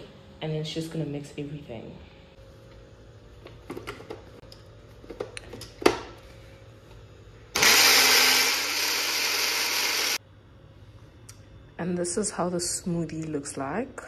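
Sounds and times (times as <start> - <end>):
blender running loudly: 7.5 - 10.2.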